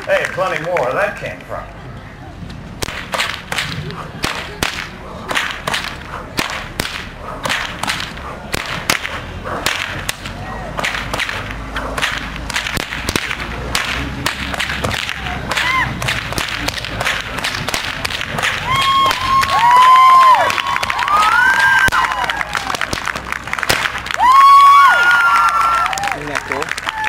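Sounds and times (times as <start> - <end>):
whips cracking: 2.8 - 24.3.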